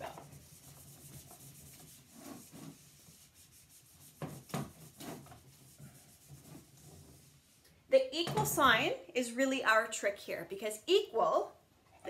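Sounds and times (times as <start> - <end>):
eraser rubbing on whiteboard: 0.0 - 7.6.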